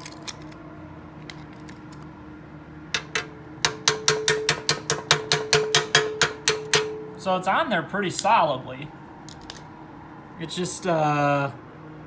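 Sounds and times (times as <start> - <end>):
hand tool striking metal: 3.0 - 7.2.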